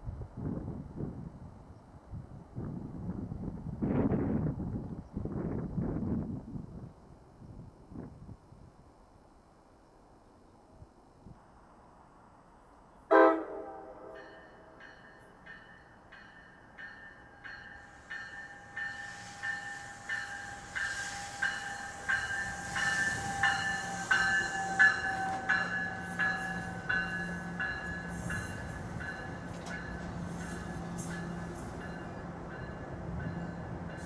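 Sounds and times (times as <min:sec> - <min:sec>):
train rumble and hiss: 0:00.0 - 0:34.0
train horn toot: 0:13.1 - 0:14.7, 0:18.4 - 0:28.8
train bell ringing: 0:14.0 - 0:34.0.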